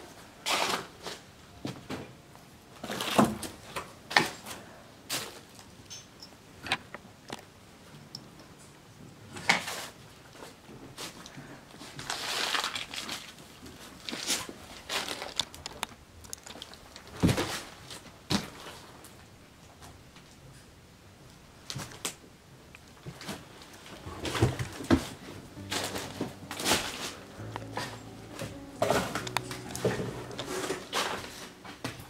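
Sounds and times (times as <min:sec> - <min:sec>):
paper and plastic crinkling: 0:09.5 - 0:19.0
footsteps: 0:24.1 - 0:32.0.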